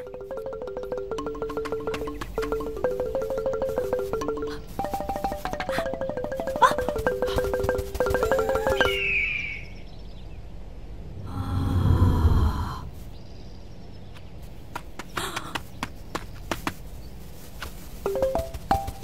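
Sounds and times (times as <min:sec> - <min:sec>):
percussive music cue: 0:00.0 - 0:09.0, 0:18.1 - 0:19.0.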